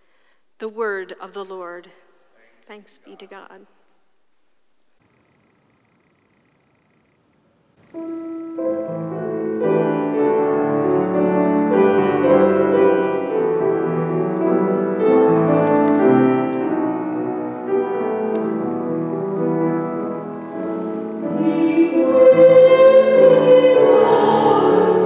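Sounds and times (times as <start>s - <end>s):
keyboard playing slow chords: 7.9s - 25.0s.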